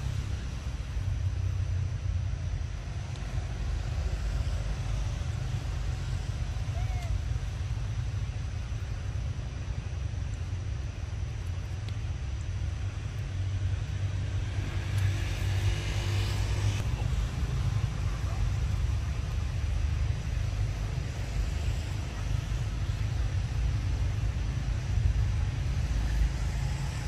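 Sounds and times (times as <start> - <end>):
low outdoor rumble: 0.0 - 27.0.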